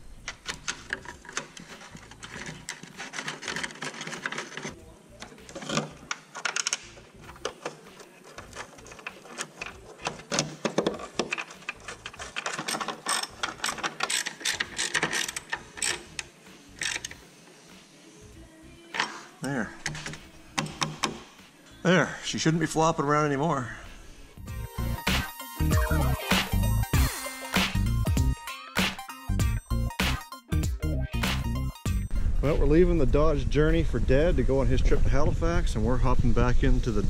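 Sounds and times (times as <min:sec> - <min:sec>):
ratchet wrench clicking: 0:08.6 - 0:17.2.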